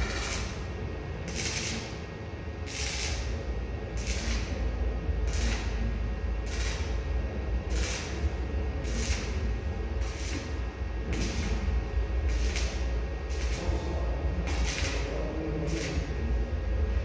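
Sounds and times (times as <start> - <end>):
arc welding crackle: 0.0 - 17.0
steady low hum: 0.0 - 17.0.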